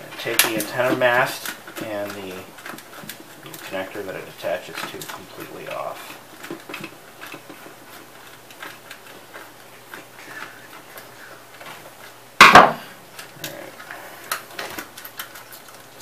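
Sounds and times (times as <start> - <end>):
loud sharp knock: 12.4 - 12.8.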